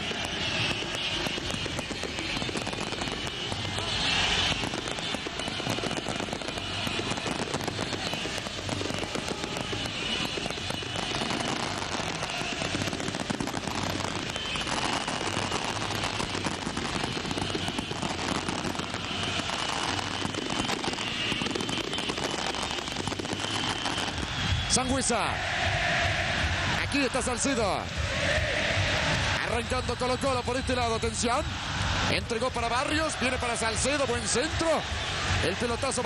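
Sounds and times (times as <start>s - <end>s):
fireworks crackling and popping: 0.0s - 25.1s, 28.9s - 36.0s
stadium crowd noise: 0.0s - 36.0s.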